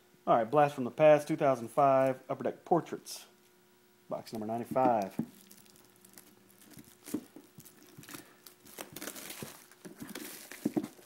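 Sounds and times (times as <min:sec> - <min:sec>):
plastic wrap crinkling and tearing: 0:04.8 - 0:11.0.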